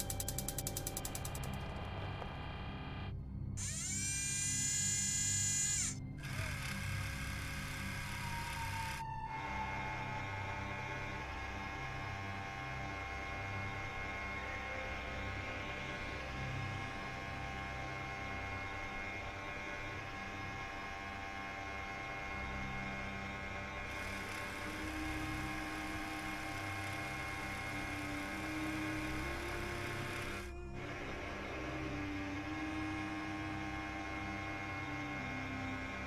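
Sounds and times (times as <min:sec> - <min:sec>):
low pulsing tone: 0:00.0 - 0:36.0
synthesizer drones: 0:00.0 - 0:36.0.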